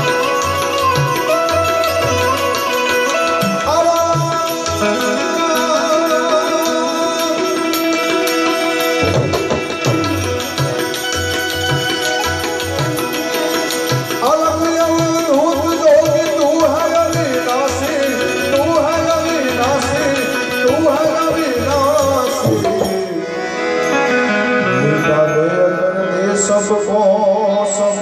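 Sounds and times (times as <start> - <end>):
hand drum rhythm: 0.0 - 23.3
plucked banjo melody: 0.0 - 26.8
harmonium tones: 0.0 - 28.0.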